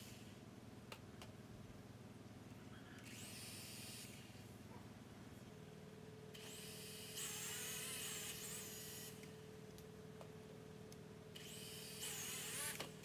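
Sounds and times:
toy drone motors whining: 3.0s - 4.4s, 6.3s - 9.4s, 11.4s - 13.0s.

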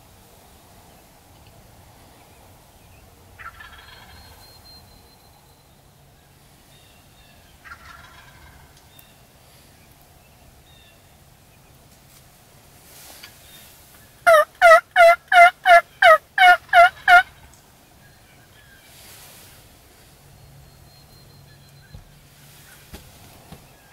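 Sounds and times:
turkey gobbling: 3.4s - 4.4s, 7.6s - 8.8s, 14.2s - 17.6s.

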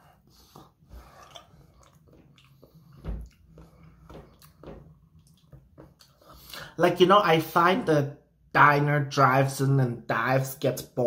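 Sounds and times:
person chewing raw fish: 0.3s - 6.5s
wet mouth clicks and smacks: 1.1s - 3.5s, 4.3s - 6.6s.

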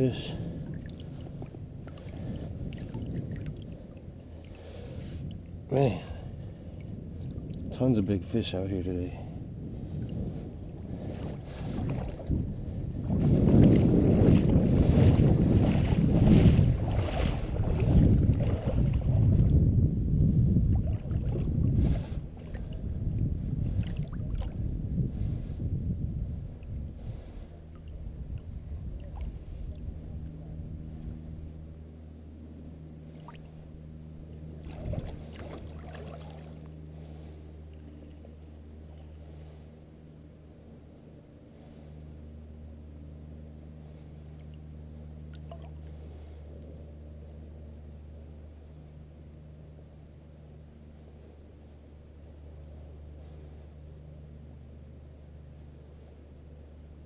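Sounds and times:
creek water lapping: 0.0s - 25.7s, 26.4s - 31.9s, 32.6s - 40.3s, 41.4s - 47.7s
wind buffeting microphone: 0.0s - 31.6s, 34.5s - 36.3s
low hum: 0.0s - 57.0s
creek water splashing: 13.0s - 19.6s, 34.4s - 38.2s, 45.2s - 45.9s.

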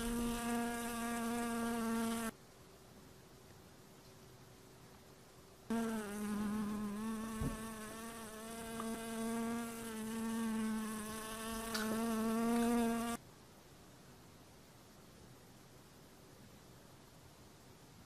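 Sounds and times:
fly buzzing in flight: 0.0s - 2.3s, 5.7s - 13.2s.

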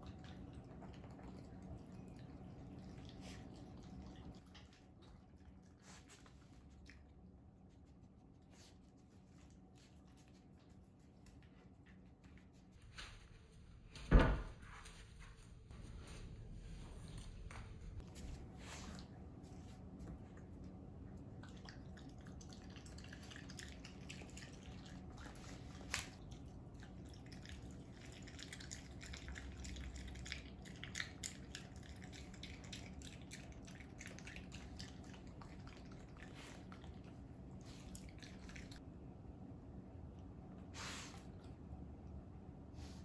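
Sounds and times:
animal chewing wet food: 0.0s - 12.0s, 18.0s - 38.8s.

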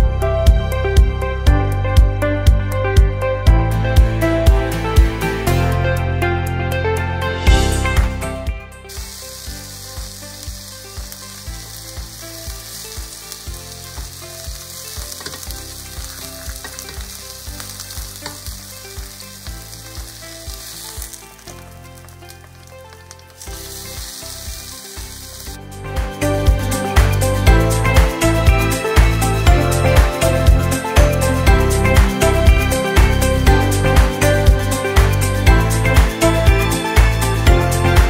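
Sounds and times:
food sizzling in a frying pan: 8.8s - 31.3s
spoon moving food in pan: 14.6s - 19.5s.

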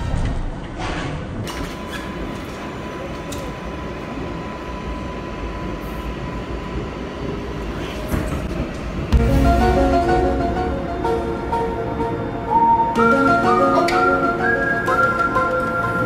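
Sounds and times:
subway train wheels rumbling: 0.0s - 16.0s
music: 9.1s - 16.0s.

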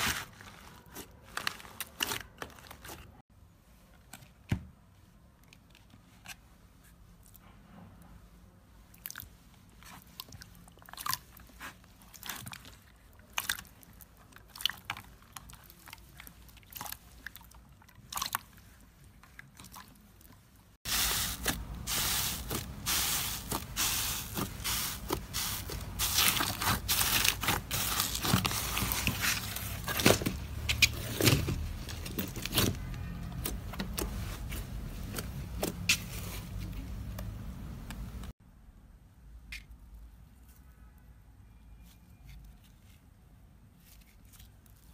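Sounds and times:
bubbly slime crackling and popping: 9.9s - 18.7s.

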